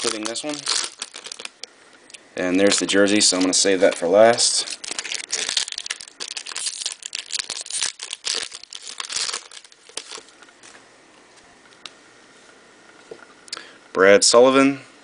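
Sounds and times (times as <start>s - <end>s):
plastic wrapper crinkling and tearing: 0.0s - 1.7s, 2.6s - 10.5s.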